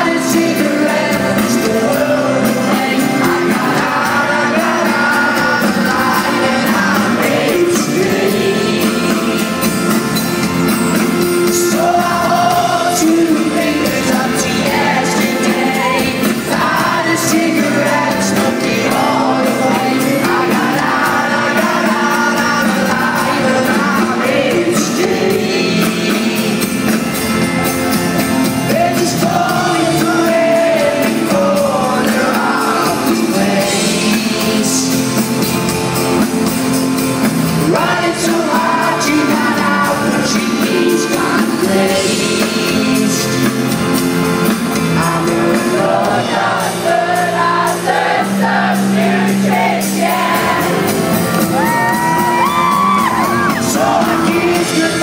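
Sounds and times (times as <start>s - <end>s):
live band with man singing: 0.0s - 55.0s
crowd shouting: 45.9s - 55.0s.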